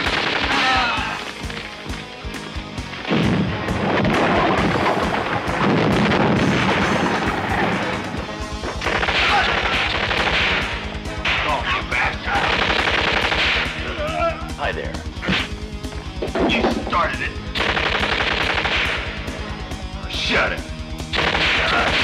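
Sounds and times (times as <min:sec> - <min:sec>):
machine-gun fire: 0:00.0 - 0:02.0, 0:03.0 - 0:11.6, 0:12.2 - 0:14.0, 0:17.5 - 0:19.4, 0:21.0 - 0:22.0
film music: 0:00.0 - 0:22.0
explosion rumbling: 0:03.0 - 0:09.6.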